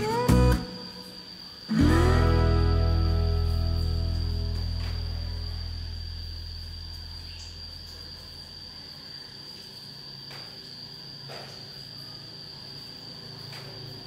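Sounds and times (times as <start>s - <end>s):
guitar music: 0.0s - 6.2s
insect trilling: 0.0s - 14.0s.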